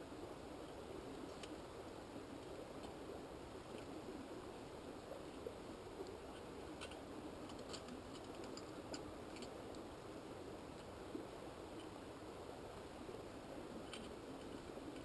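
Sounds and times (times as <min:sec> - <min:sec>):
small brook flowing: 0:00.0 - 0:15.0
small light clicks: 0:06.0 - 0:09.9.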